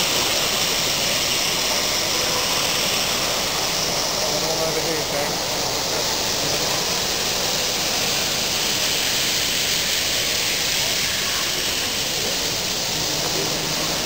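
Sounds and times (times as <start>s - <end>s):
exhibition hall crowd din: 10.6s - 14.0s.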